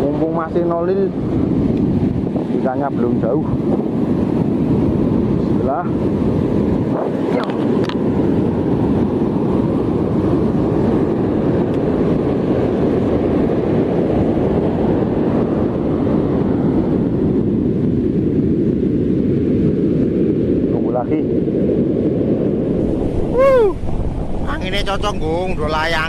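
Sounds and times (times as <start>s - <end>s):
wind rumbling on microphone: 0.0s - 26.0s
surf breaking on beach: 22.6s - 26.0s.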